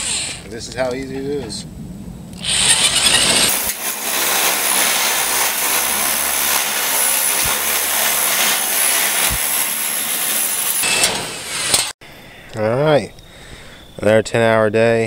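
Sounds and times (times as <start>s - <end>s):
drill whine: 0.0s - 0.5s, 2.4s - 11.6s
snips shearing metal: 2.4s - 12.0s.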